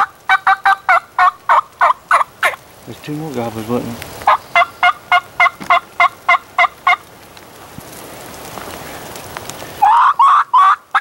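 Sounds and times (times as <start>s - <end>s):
wild turkey calling: 0.0s - 2.6s, 4.2s - 7.1s, 8.8s - 11.0s
light rain hiss: 0.0s - 11.0s.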